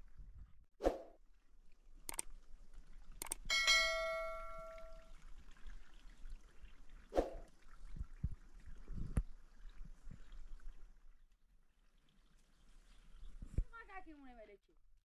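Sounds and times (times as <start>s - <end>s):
metallic bell ring: 3.5s - 5.1s.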